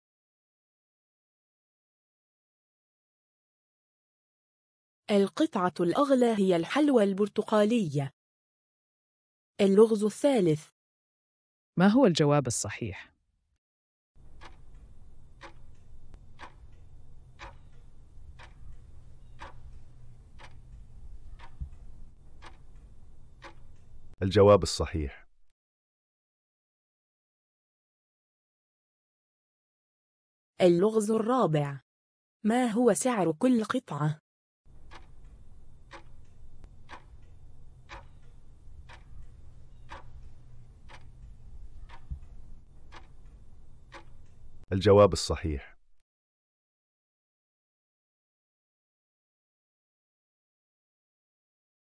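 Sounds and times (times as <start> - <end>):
clock ticking: 14.2 - 24.2, 34.7 - 44.7
low steady hum: 14.2 - 24.2, 34.7 - 44.6.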